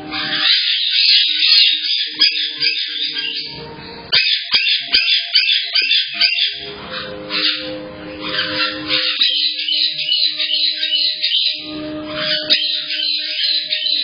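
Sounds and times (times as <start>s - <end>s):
parrots chirping and squawking: 0.0s - 14.0s.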